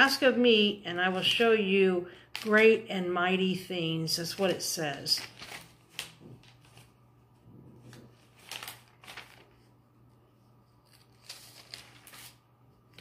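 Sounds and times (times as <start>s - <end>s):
paper pages rustling: 4.2s - 7.1s, 7.8s - 13.0s.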